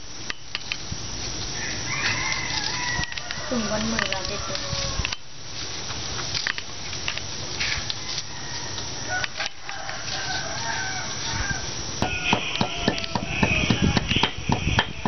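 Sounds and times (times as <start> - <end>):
rooster crowing: 1.5 - 5.3, 7.6 - 15.0.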